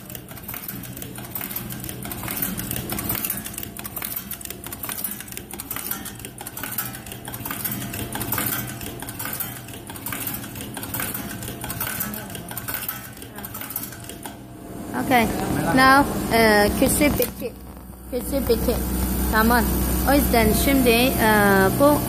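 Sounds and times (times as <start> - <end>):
machine metallic clicking: 0.0 - 14.5
low motor hum: 0.0 - 22.0.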